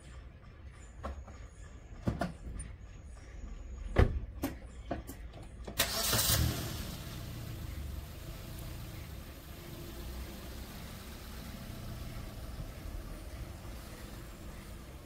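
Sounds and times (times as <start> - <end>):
car engine starting and idling: 5.6 - 15.0.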